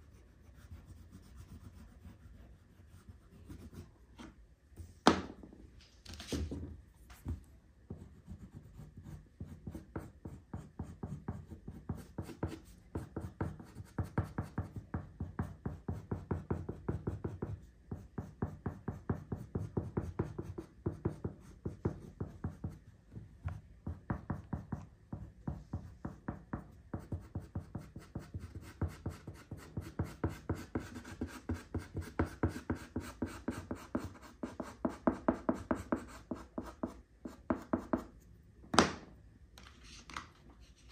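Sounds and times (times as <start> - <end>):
oil pastel scratching on paper: 0.0 - 4.3, 26.9 - 38.1.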